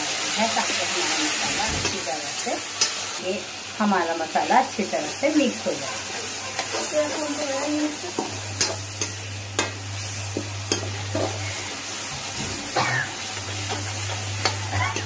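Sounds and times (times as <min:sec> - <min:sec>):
masala sizzling in a pan: 0:00.0 - 0:15.0.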